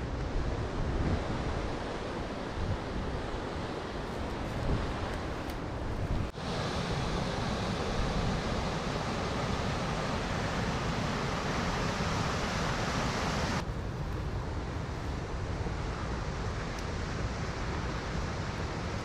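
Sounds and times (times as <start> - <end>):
wind buffeting microphone: 0.0 - 6.4.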